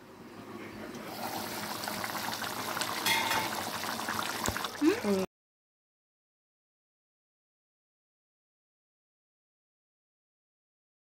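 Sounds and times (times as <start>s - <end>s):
curry bubbling and sputtering: 1.0s - 5.3s.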